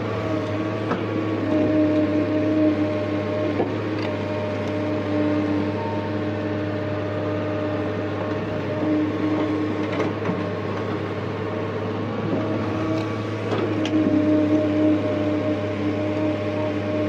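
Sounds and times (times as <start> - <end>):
excavator engine droning: 0.0 - 17.0.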